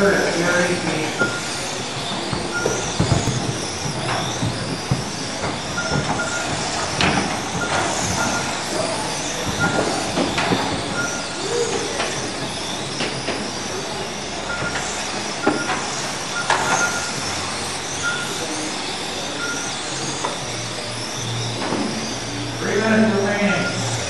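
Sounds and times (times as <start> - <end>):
electric motors whining: 0.0 - 24.0
short high beeps: 0.4 - 1.7, 5.8 - 6.6, 9.6 - 10.2, 14.5 - 14.8, 15.4 - 17.3, 18.0 - 18.4.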